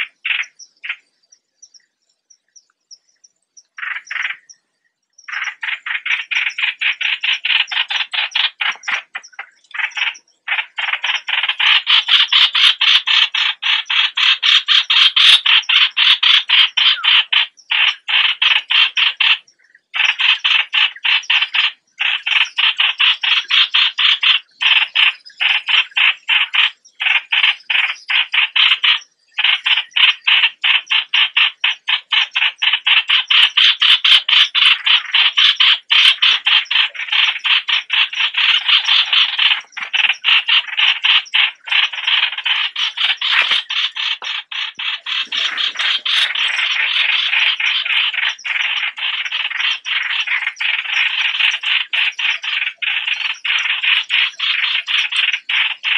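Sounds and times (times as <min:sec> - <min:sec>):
bird chattering call: 0:00.0 - 0:01.1, 0:03.7 - 0:04.6, 0:05.2 - 0:55.9.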